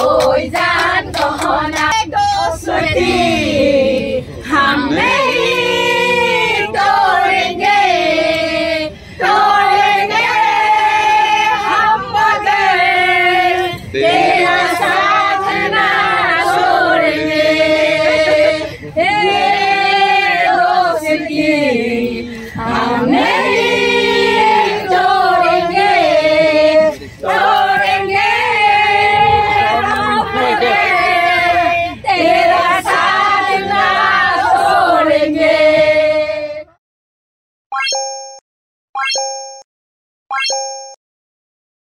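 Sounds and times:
women singing in chorus: 0.0s - 36.8s.

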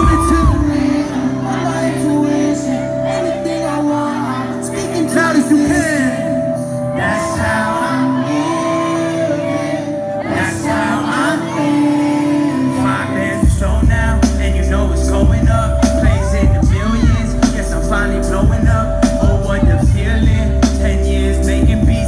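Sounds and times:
crowd shouting: 0.0s - 4.7s, 6.9s - 13.2s
person singing: 0.0s - 22.0s
synth chords: 0.0s - 22.0s.

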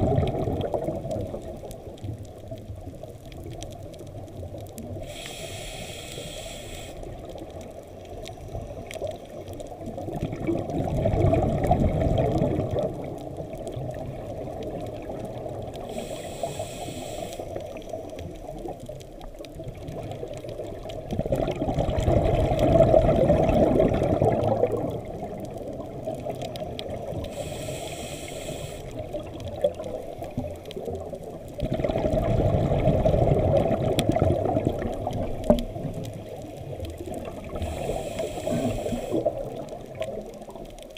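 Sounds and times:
exhaled bubbles rumbling: 0.0s - 5.1s, 7.1s - 16.0s, 17.6s - 27.5s, 28.9s - 40.9s
regulator inhale hiss: 4.8s - 7.4s, 15.8s - 18.3s, 27.1s - 29.4s, 37.4s - 39.6s.

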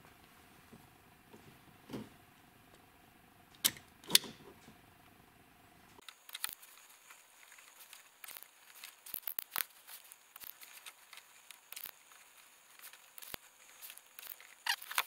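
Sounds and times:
wires and plastic crinkling: 6.0s - 15.0s.

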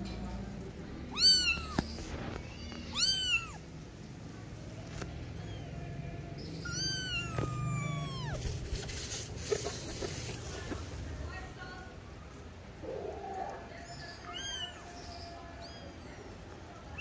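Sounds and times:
kitten mewing: 1.1s - 2.0s, 2.8s - 3.6s, 6.5s - 8.8s.

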